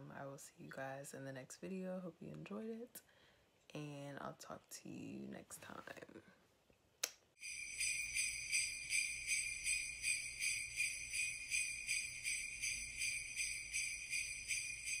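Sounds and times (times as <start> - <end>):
sleigh bells jingling: 7.4 - 15.0.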